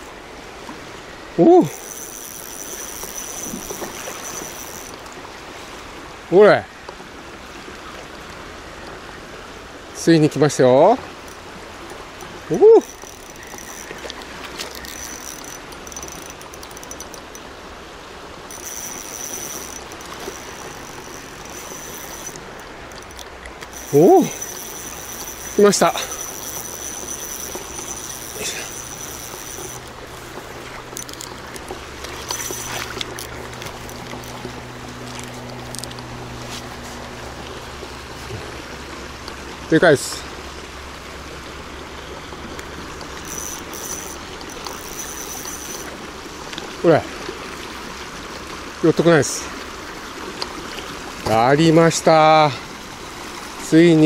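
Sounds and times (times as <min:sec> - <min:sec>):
river rushing: 0:00.0 - 0:54.0
thin high tone: 0:01.4 - 0:05.0, 0:11.2 - 0:17.5, 0:18.5 - 0:34.5, 0:43.2 - 0:45.9.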